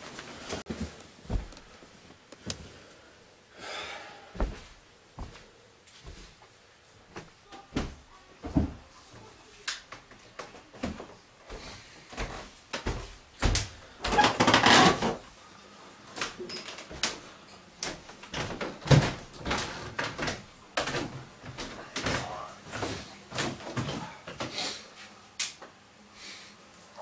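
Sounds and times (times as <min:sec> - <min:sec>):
footsteps on a staircase: 0:00.6 - 0:01.8, 0:04.4 - 0:06.5, 0:07.1 - 0:09.3, 0:10.0 - 0:14.2, 0:17.8 - 0:24.5.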